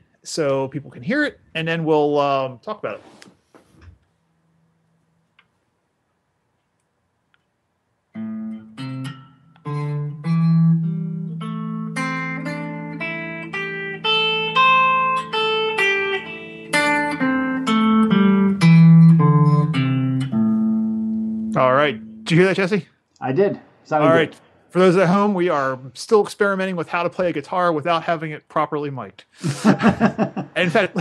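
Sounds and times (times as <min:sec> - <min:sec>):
guitar playing scale: 0:08.2 - 0:22.8, 0:23.9 - 0:28.2.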